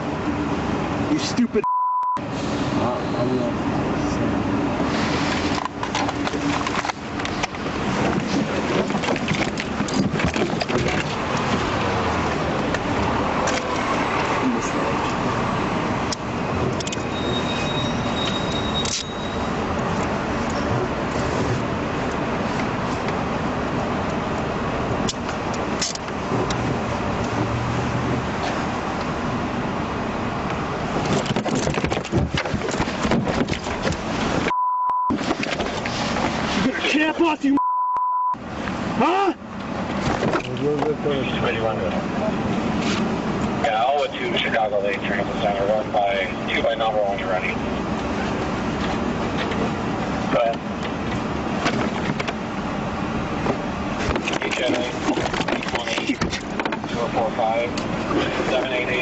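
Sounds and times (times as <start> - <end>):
censor beep: 1.6 - 2.2, 34.5 - 35.1, 37.6 - 38.4
knocks and bumps: 5.6 - 11.8, 31.0 - 34.5, 53.4 - 57.0.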